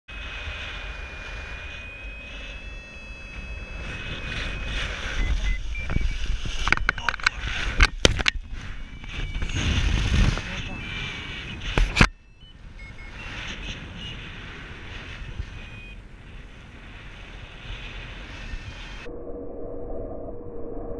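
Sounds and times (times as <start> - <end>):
thin electronic tones: 0.1 - 16.1, 17.7 - 20.9
wind rushing over microphone: 0.1 - 20.9
paraglider wing cracks and buffets: 3.8 - 12.1.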